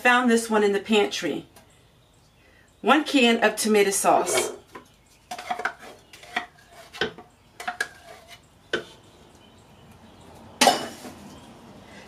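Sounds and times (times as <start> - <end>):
spoon scraping a tin can: 4.2 - 9.1.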